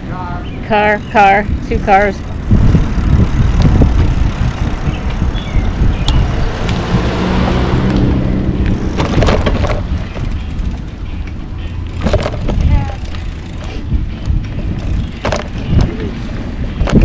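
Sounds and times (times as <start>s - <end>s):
wind rumbling on microphone: 0.0s - 17.0s
car passing: 1.5s - 12.2s
knocks and rattles: 8.7s - 11.0s, 12.0s - 16.0s.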